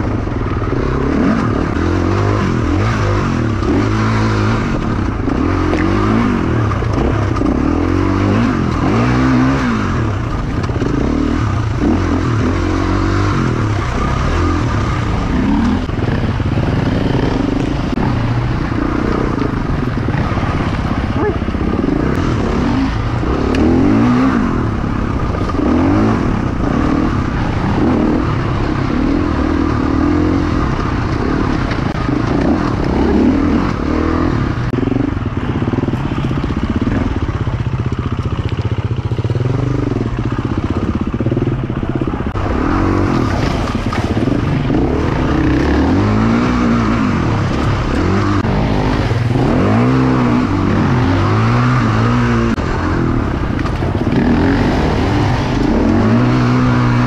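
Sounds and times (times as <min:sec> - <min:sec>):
dirt bike engine revving: 0:00.0 - 0:38.2, 0:38.8 - 0:57.0.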